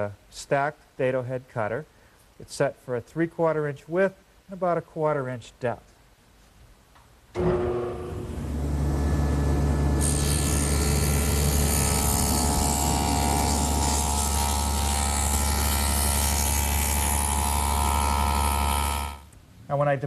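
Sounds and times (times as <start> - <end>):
saw cutter cutting wood board: 7.4 - 19.3
table saw humming: 7.4 - 19.3.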